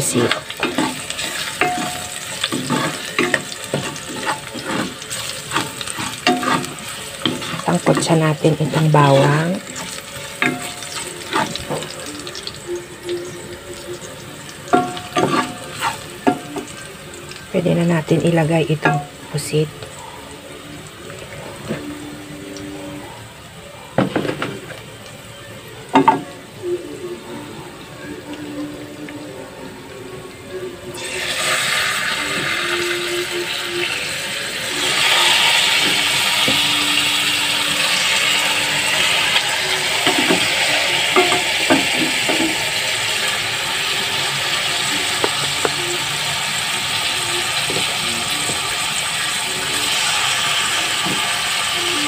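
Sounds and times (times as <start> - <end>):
garlic sizzling in oil: 0.0 - 23.1, 30.9 - 52.0
spatula scraping a pan: 0.4 - 12.0, 14.8 - 16.8.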